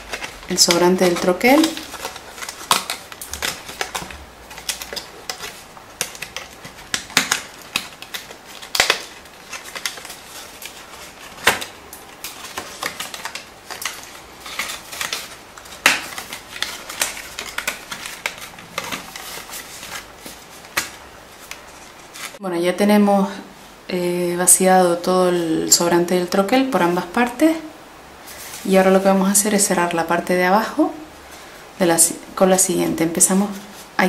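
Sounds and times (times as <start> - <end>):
stiff card clicking and crackling: 0.0 - 22.4.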